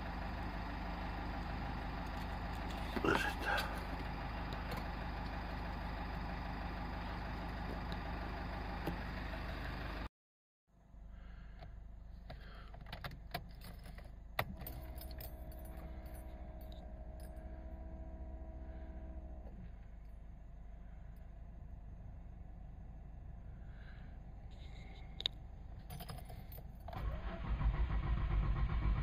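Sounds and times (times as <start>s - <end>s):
keys rattling in ignition: 2.0s - 4.9s, 12.7s - 17.5s, 24.6s - 27.6s.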